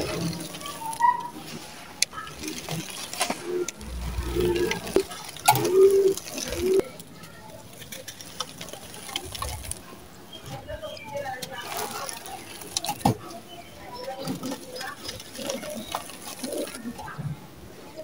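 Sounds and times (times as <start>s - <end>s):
sand trickling into a bowl: 0.0s - 10.1s, 11.4s - 17.2s
sand-cement chunks crushed by hand: 0.0s - 10.1s.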